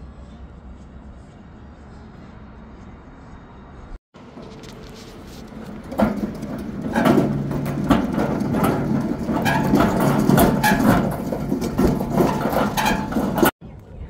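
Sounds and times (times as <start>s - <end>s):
metal cart rattling over asphalt: 4.2s - 13.6s.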